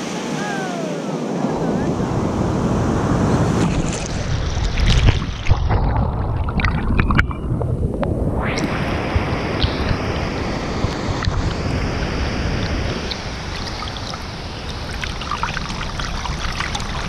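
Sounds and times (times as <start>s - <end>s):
ocean surf washing in: 0.0s - 17.0s
muffled bubbly underwater sound: 3.7s - 17.0s.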